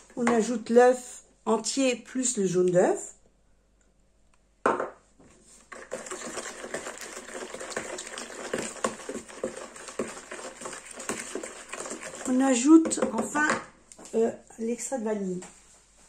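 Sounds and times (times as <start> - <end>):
knock on plastic bowl: 4.6 - 5.0, 11.8 - 13.7
utensil beating eggs in a bowl: 5.6 - 13.7.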